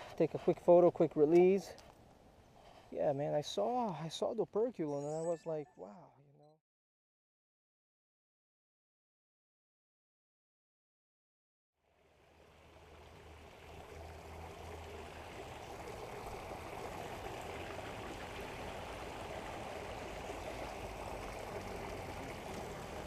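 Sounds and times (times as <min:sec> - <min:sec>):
creek water rushing: 0:12.0 - 0:23.0.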